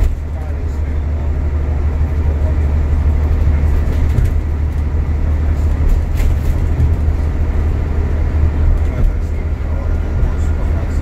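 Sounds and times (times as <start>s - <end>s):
bus engine and road rumble: 0.0s - 11.0s.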